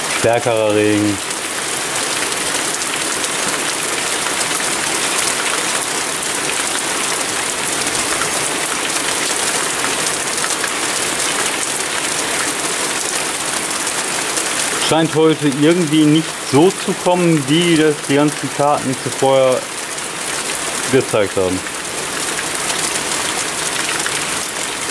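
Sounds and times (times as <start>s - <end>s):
heavy rain pouring: 0.0s - 24.9s.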